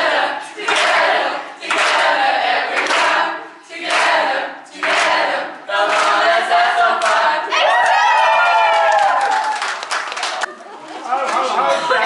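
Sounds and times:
young people singing in unison: 0:00.0 - 0:07.7.

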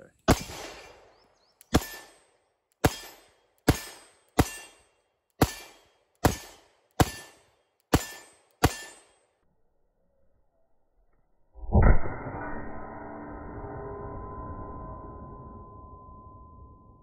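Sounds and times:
handgun shots with echo: 0:01.7 - 0:09.2.

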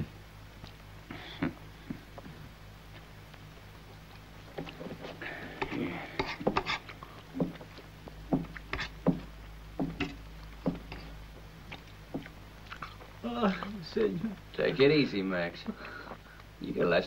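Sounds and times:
spoon scraping on plate: 0:05.6 - 0:06.9
chewing: 0:10.4 - 0:13.8.

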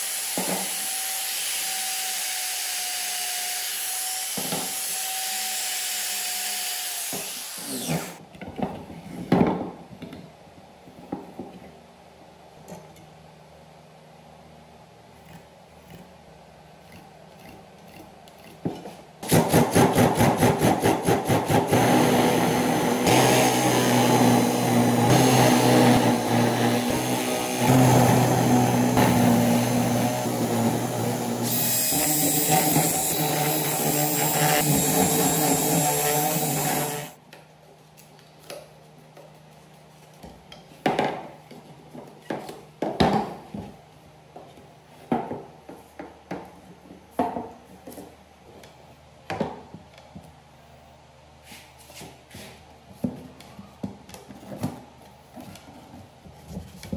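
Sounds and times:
cordless drill boring bamboo: 0:00.0 - 0:08.2, 0:21.6 - 0:37.2.

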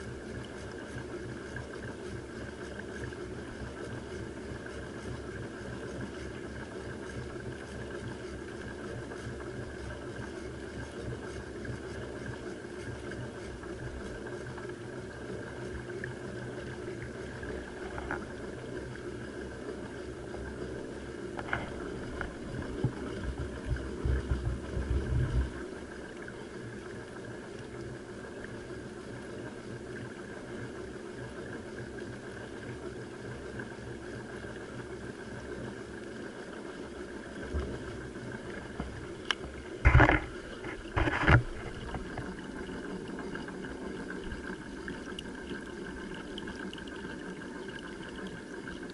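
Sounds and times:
water washing along hull: 0:00.0 - 0:48.9.

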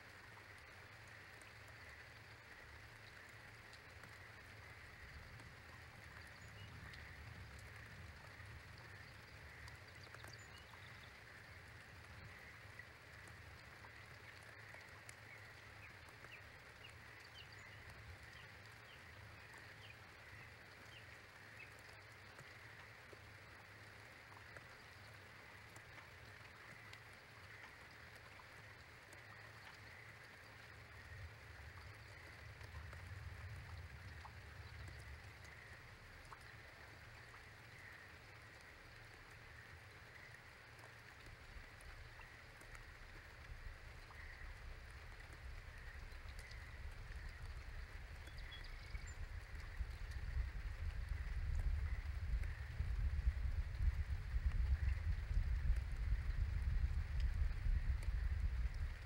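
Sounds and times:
raindrop ticks: 0:00.0 - 0:59.0
low steady rumble: 0:43.4 - 0:59.0
faint bird chirps: 0:45.2 - 0:50.9.

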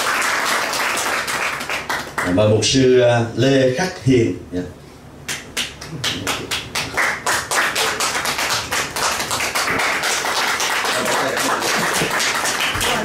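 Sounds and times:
audience applauding: 0:00.0 - 0:02.3, 0:05.7 - 0:13.0.

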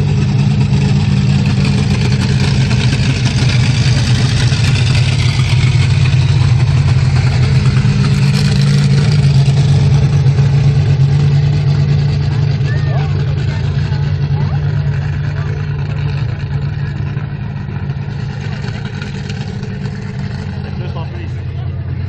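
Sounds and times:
monster truck engine rumbling: 0:00.0 - 0:22.0.

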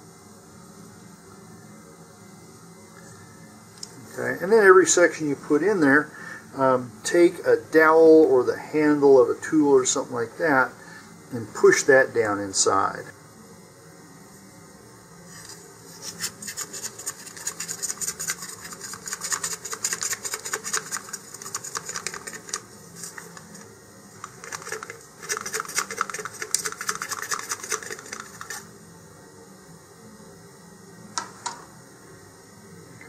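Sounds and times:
rod scraping inside nose cone: 0:15.3 - 0:23.4, 0:24.3 - 0:28.7.

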